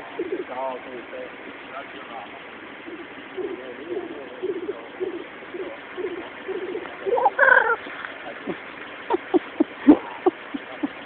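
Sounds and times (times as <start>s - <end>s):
grouse bubbling coo: 0.0s - 0.6s, 2.9s - 7.8s, 8.5s - 11.0s
loud high bird call: 7.1s - 7.9s.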